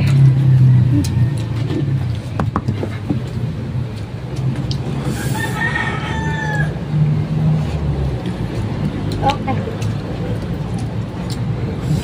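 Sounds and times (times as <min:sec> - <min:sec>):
rooster crowing: 0:05.1 - 0:07.1.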